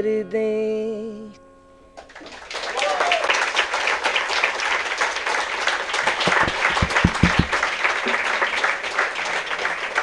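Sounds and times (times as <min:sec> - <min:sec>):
audience applauding: 0:02.1 - 0:10.0
low thumps: 0:06.3 - 0:07.6.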